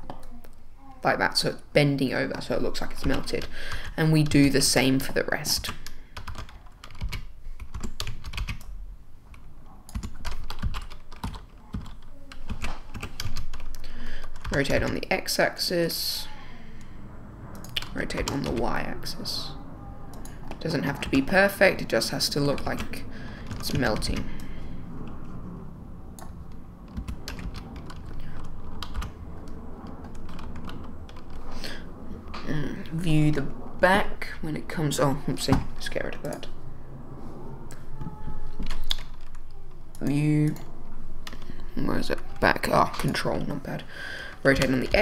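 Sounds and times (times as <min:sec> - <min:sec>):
low steady hum: 0:00.0 - 0:45.0
keyboard keys clicking: 0:05.8 - 0:08.7, 0:09.3 - 0:15.0, 0:26.9 - 0:31.4.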